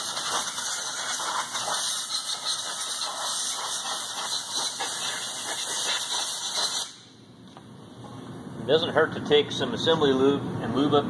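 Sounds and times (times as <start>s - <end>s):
compressed air blow gun hissing: 0.0s - 7.1s.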